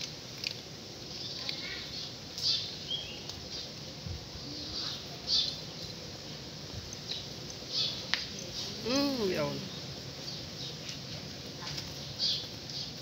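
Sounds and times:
cats crunching dry kibble: 0.0 - 4.3.

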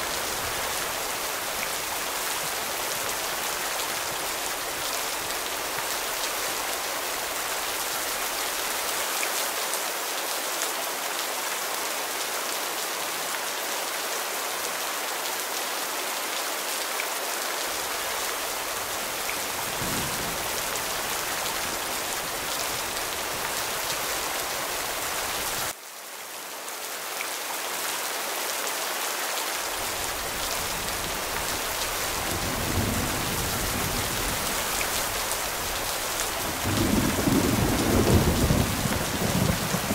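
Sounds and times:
steady rain falling: 0.0 - 39.9
low thunder rumbles: 19.4 - 24.1, 32.0 - 35.7, 36.3 - 39.9.

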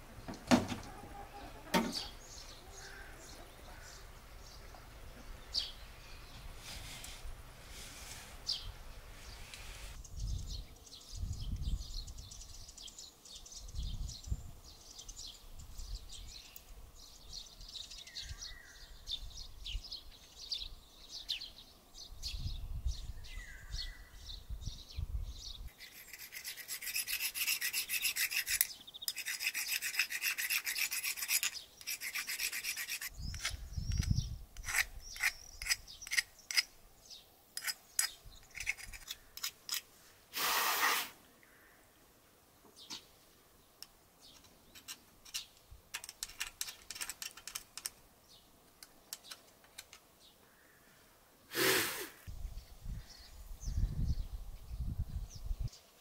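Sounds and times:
bird chirping: 0.2 - 7.0, 8.4 - 39.5
rasping filing scrape: 25.8 - 33.5.

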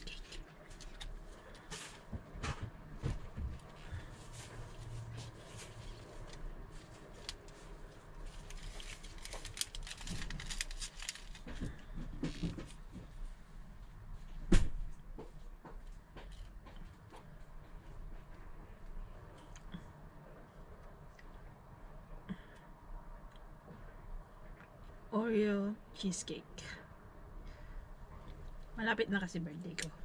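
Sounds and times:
plastic packaging crinkling: 0.0 - 1.3, 5.4 - 12.7.

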